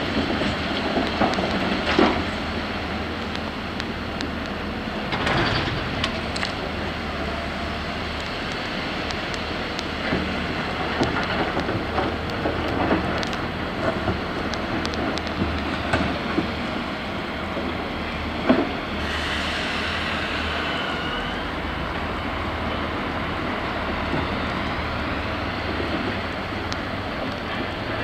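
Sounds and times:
excavator diesel engine running: 0:00.0 - 0:28.0
rush of noise: 0:00.8 - 0:28.0
clanks of rock and steel: 0:05.1 - 0:06.6.

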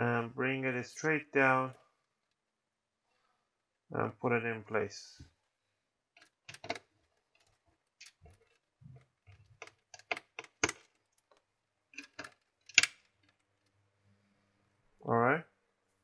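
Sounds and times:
metal parts clicking and tapping: 0:06.2 - 0:13.7.

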